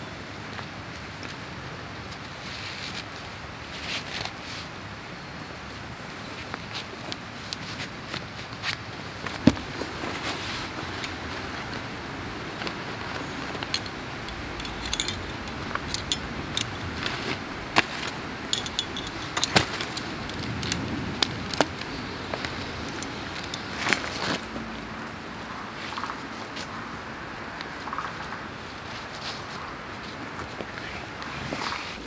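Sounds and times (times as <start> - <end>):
nylon sacks rustling: 8.3 - 24.5
metal fittings clinking: 13.4 - 20.9, 22.8 - 24.0.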